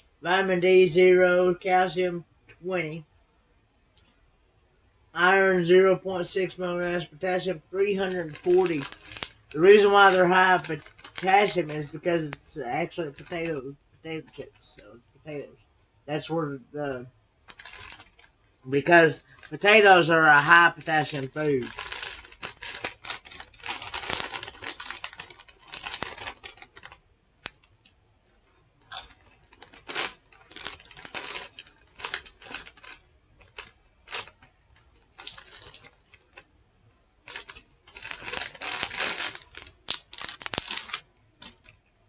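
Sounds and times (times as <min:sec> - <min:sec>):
potato chip bag crinkling: 0:06.2 - 0:15.5, 0:17.4 - 0:36.4, 0:37.2 - 0:42.0.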